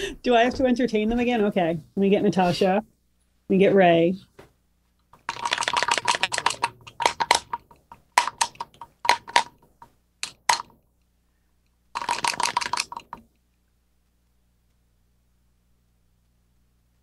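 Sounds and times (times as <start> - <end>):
computer keyboard typing: 5.2 - 10.8, 12.0 - 13.2.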